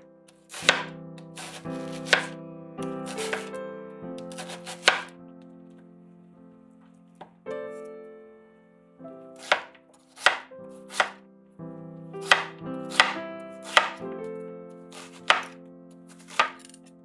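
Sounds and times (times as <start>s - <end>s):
soft piano music: 0.0s - 17.0s
knife chopping on cutting board: 0.5s - 2.4s, 3.1s - 3.5s, 4.3s - 5.1s, 9.4s - 11.2s, 12.2s - 14.0s, 14.9s - 16.8s.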